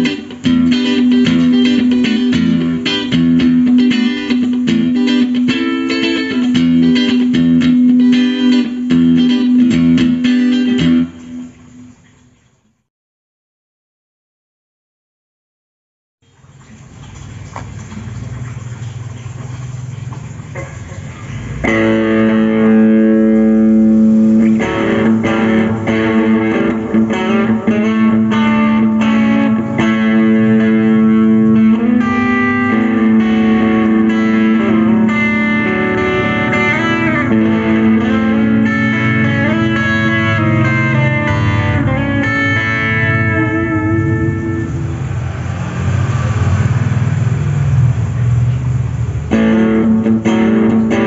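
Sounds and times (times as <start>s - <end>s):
overdriven electric guitar: 0.0s - 11.6s, 21.5s - 47.8s, 49.2s - 51.0s.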